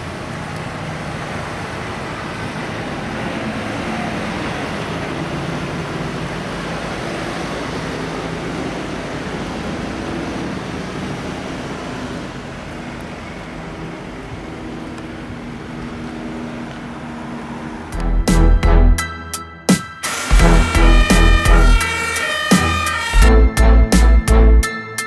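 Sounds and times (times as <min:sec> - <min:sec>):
vehicles driving past: 0:00.0 - 0:19.0.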